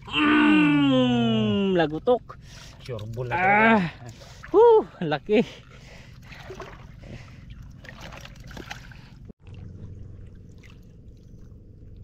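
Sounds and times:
steady low hum: 0.0 - 12.0
shallow water sloshing: 1.8 - 12.0.

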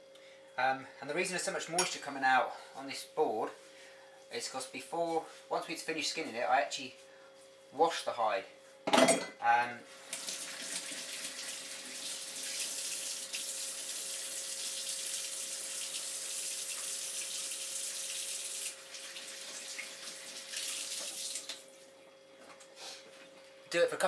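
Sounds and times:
water running from tap: 10.0 - 21.7.

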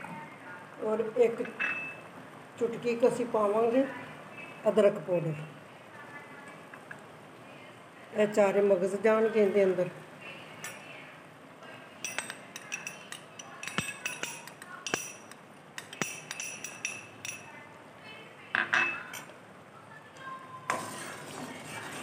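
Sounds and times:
glass bowl clinking: 12.0 - 17.6.

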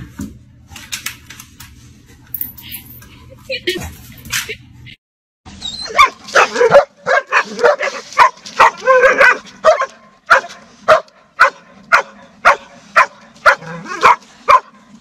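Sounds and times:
dog barking: 5.9 - 14.8.

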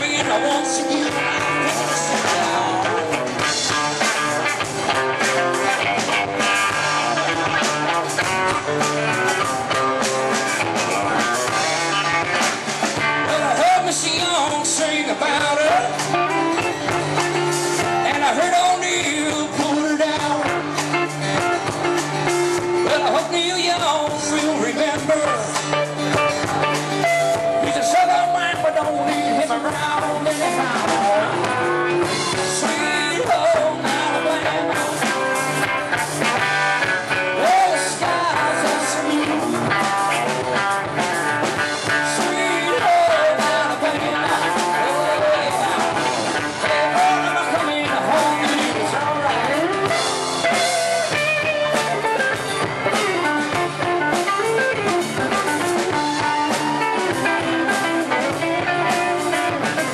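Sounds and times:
man singing into microphone: 0.0 - 4.0, 13.0 - 21.0, 22.8 - 25.9, 27.0 - 35.8, 37.1 - 52.3
live rock band playing: 0.0 - 59.9.

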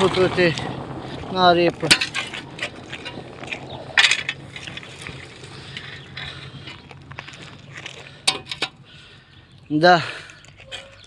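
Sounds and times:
shovel scraping gravel: 1.1 - 8.8, 10.0 - 11.0.

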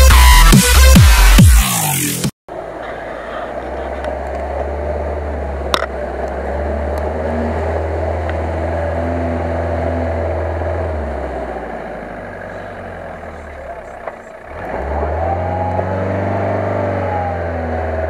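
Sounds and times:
off-road vehicle engine droning: 0.0 - 18.0.

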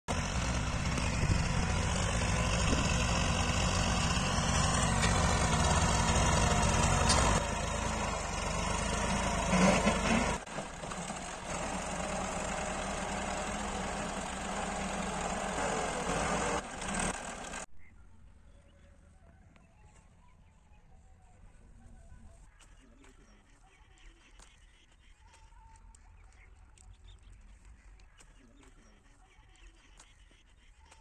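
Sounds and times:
diesel tractor engine throbbing: 0.1 - 17.7.

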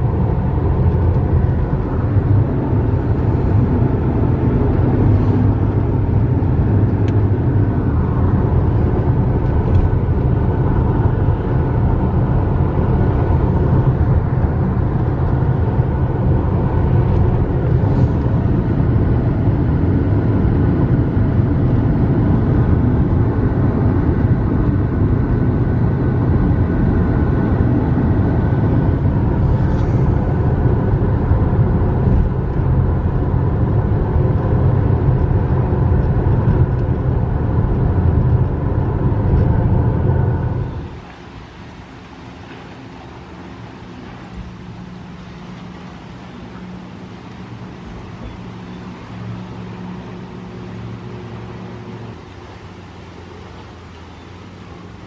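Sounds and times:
car cabin road rumble: 0.0 - 55.0.

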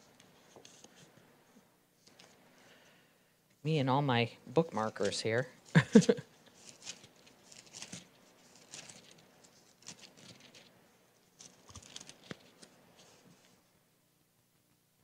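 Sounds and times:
book pages rustling: 0.1 - 1.2, 2.0 - 2.4, 6.4 - 13.6.

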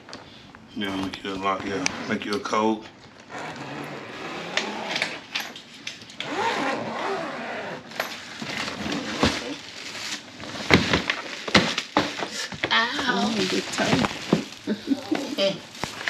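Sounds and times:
rustling crinkling noise: 8.1 - 16.0.

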